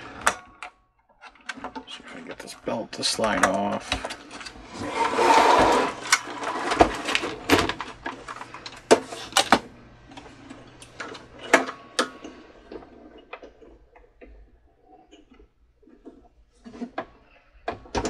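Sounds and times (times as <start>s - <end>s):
machine parts clicking and rattling: 0.0s - 4.9s.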